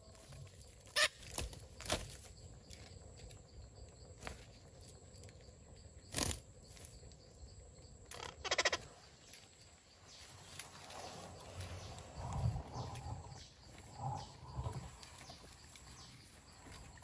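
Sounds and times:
parakeets squawking: 8.2s - 8.8s.

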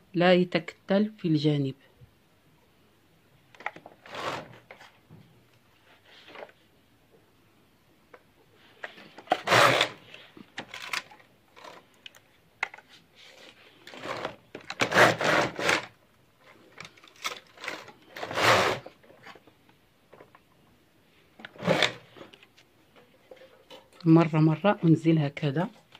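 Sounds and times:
knitting machine carriage sliding: 3.6s - 4.9s, 8.8s - 12.0s, 13.4s - 16.0s, 17.2s - 19.4s, 21.4s - 22.3s.

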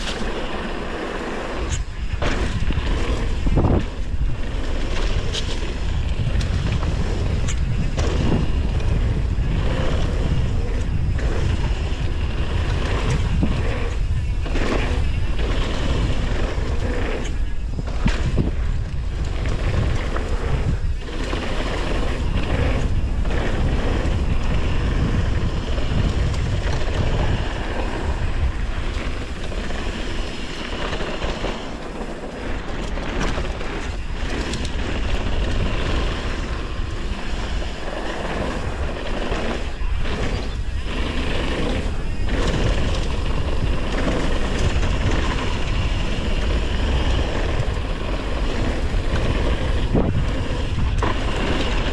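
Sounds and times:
tyres rumbling on dirt: 0.0s - 51.9s
wind buffeting microphone: 0.0s - 51.9s.

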